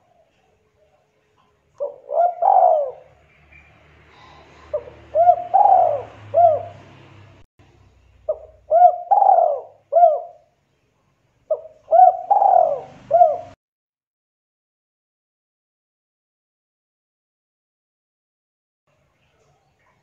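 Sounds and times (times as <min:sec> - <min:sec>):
dove cooing: 0:01.8 - 0:03.2, 0:04.2 - 0:07.0, 0:08.3 - 0:10.5, 0:11.5 - 0:13.6.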